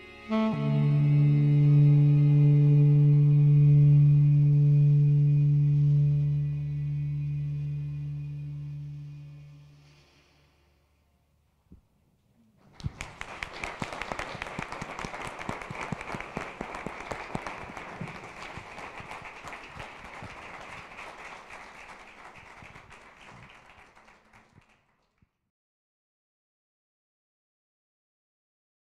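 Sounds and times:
audience applause: 0:12.6 - 0:25.0.

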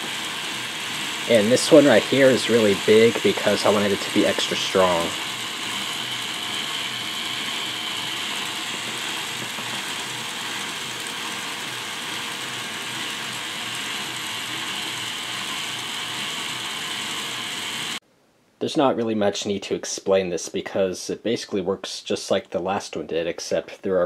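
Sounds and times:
toy electric motors driving gears: 0:00.0 - 0:18.0.

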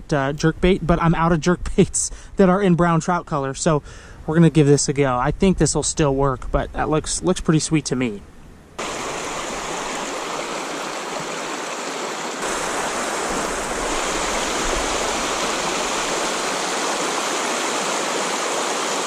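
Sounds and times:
river rushing over cobbles: 0:08.8 - 0:19.0.

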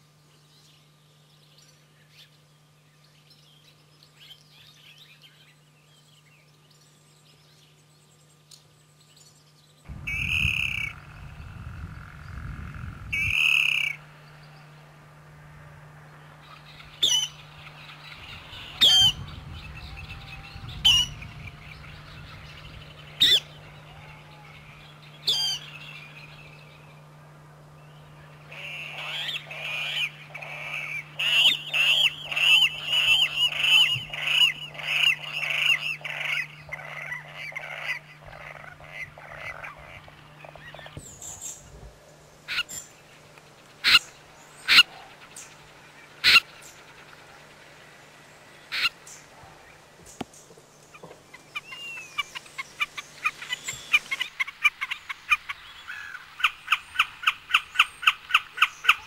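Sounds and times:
bird squealing calls: 0:10.1 - 0:11.0, 0:12.8 - 0:14.0, 0:17.0 - 0:17.4, 0:18.3 - 0:21.8, 0:23.2 - 0:25.8, 0:28.5 - 0:41.6, 0:42.5 - 0:42.8, 0:43.8 - 0:45.2, 0:46.2 - 0:46.5, 0:48.7 - 0:49.0
bird sharp call: 0:18.3 - 0:21.7, 0:46.2 - 0:46.5.

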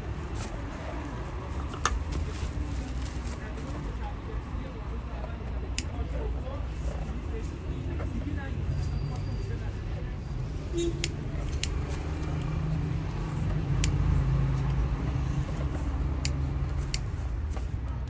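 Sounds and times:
vehicle engine rumbling: 0:00.0 - 0:18.0
sharp clicks: 0:11.0 - 0:12.6, 0:13.6 - 0:14.0.

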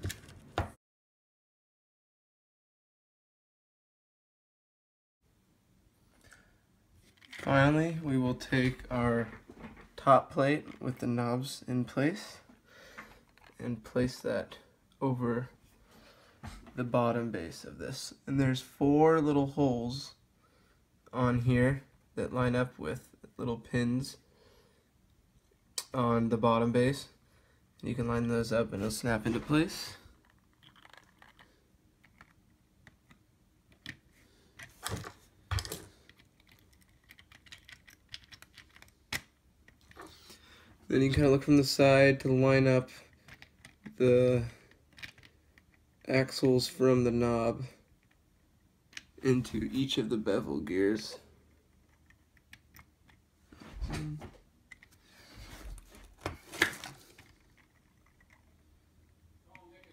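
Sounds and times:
plastic parts clicking: 0:13.2 - 0:13.6, 0:30.2 - 0:40.1, 0:43.1 - 0:44.0, 0:44.7 - 0:46.1, 0:51.5 - 0:53.2, 0:55.8 - 0:58.5.

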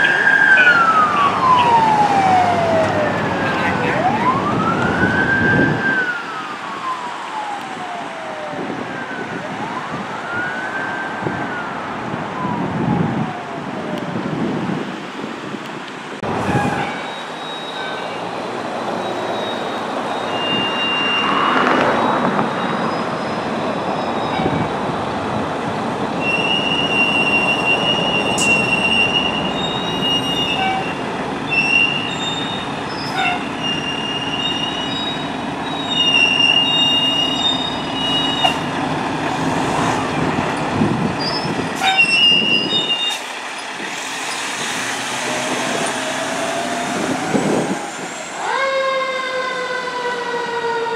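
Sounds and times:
siren rising: 0:00.0 - 0:14.2, 0:45.2 - 0:50.9
brakes squealing: 0:19.0 - 0:24.7, 0:26.2 - 0:38.8, 0:39.5 - 0:48.4.

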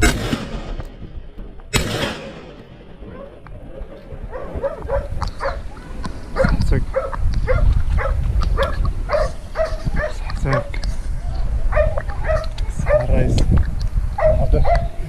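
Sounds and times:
hunting dogs barking: 0:04.2 - 0:10.8, 0:11.7 - 0:13.2, 0:14.2 - 0:15.0.

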